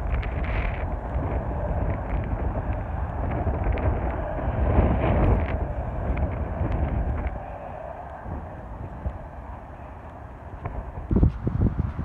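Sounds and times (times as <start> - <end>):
faint clicks: 0.0 - 11.4
wind buffeting microphone: 0.0 - 12.0.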